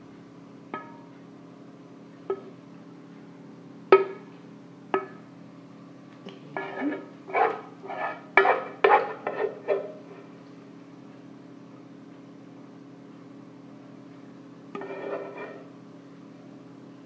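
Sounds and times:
metal spoon scraping a pan: 0:06.6 - 0:10.3, 0:14.8 - 0:15.7.

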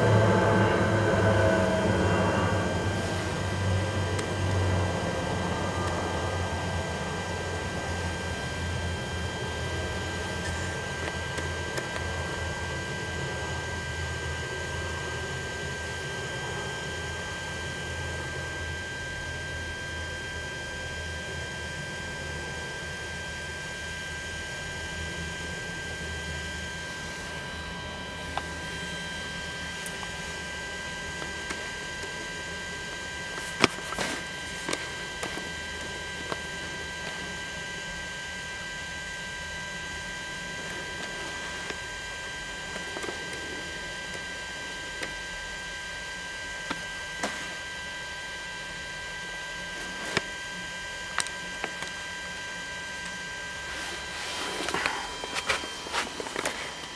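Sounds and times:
low rumble: 0:00.0 - 0:08.0
high-pitched whining tones: 0:00.0 - 0:20.4
electrical hum: 0:00.0 - 0:56.9.

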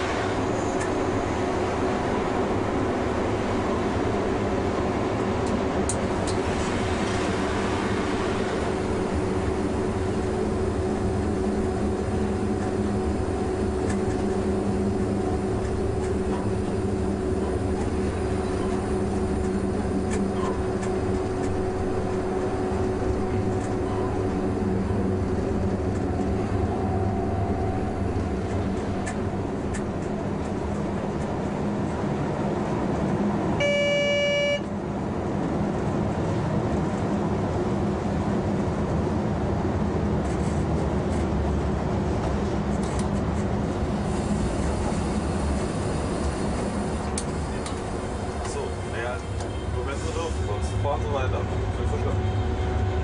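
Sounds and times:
electric locomotive hum: 0:00.0 - 0:53.0
rail running noise: 0:00.0 - 0:53.0
short horn toot: 0:33.6 - 0:34.7.

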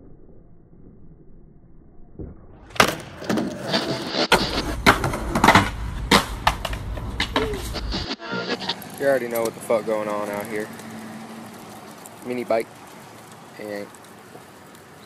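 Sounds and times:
skateboard pops and knocks: 0:02.2 - 0:07.7
skateboard wheels rumbling on pavement: 0:02.7 - 0:15.0.

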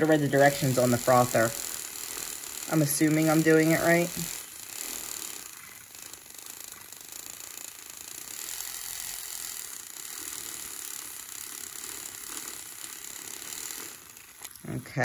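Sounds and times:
milk frother motor whirring: 0:00.0 - 0:15.0.

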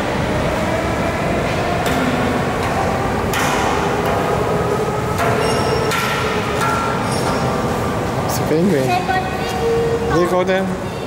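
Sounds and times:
subway train rumbling: 0:00.0 - 0:11.0
sharp knocks: 0:02.7 - 0:04.2.

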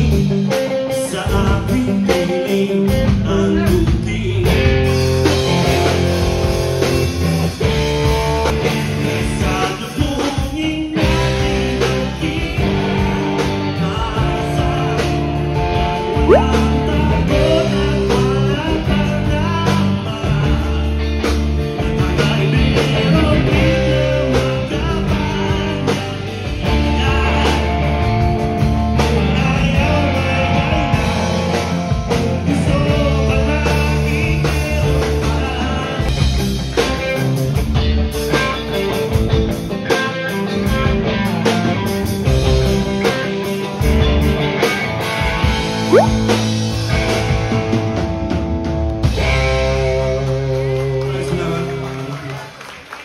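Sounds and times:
man singing: 0:00.0 - 0:05.1, 0:08.4 - 0:15.4, 0:16.2 - 0:28.2, 0:29.0 - 0:36.2, 0:49.8 - 0:52.3
bass guitar: 0:00.0 - 0:52.3
electric guitar: 0:00.0 - 0:52.8
drums: 0:00.0 - 0:53.0.

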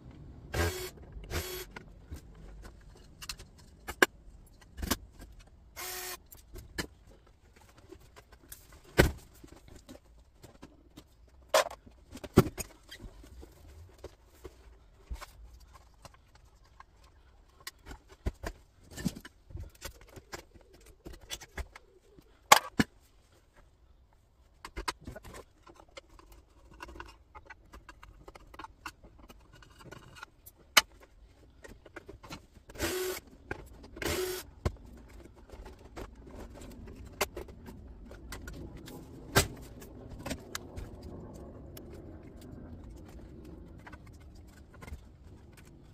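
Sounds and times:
plastic and metal parts clicking: 0:24.6 - 0:45.9.

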